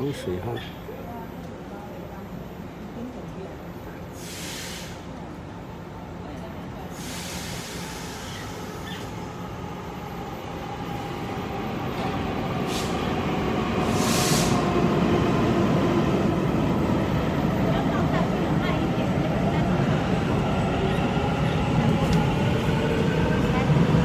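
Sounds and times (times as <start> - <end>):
air hiss bursts: 4.2 - 5.1, 6.9 - 8.7, 12.7 - 13.1, 13.8 - 14.7
train rumble and motor whine: 4.8 - 24.0.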